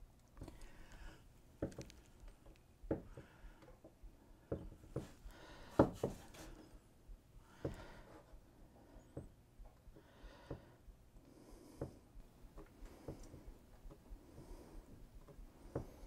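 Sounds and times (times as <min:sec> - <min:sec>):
small objects knocking and clicking: 0:01.6 - 0:02.6.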